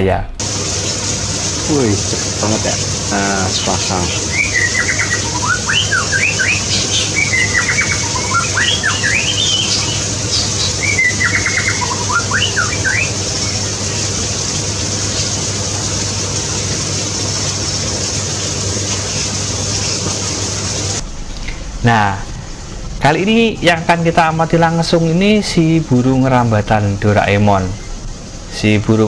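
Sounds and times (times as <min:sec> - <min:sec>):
low hum: 0:00.0 - 0:27.1
background hiss: 0:00.0 - 0:29.0
small birds chirping: 0:01.6 - 0:14.2.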